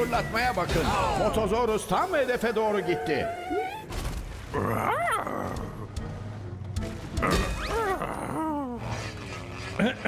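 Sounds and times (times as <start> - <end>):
background music: 0.0 - 10.0
cartoon animal yelps and whines: 7.6 - 8.8.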